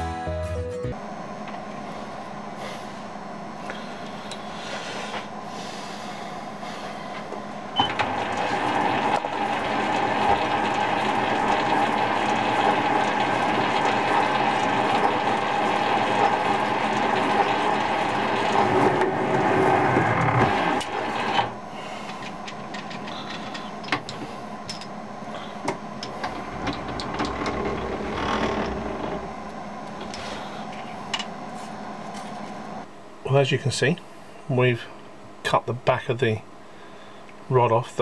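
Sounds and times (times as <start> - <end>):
faint hum: 0.9 - 38.0
metal lathe running: 5.3 - 32.0.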